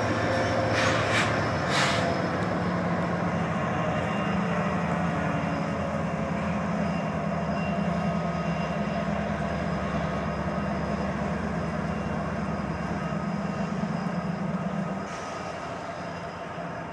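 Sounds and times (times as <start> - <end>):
diesel locomotive engine drone: 0.0 - 16.9.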